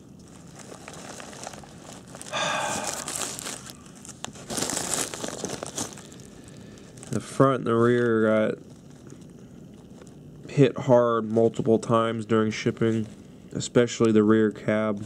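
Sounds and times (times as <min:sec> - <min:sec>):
bubble wrap crinkling: 0:00.0 - 0:10.3.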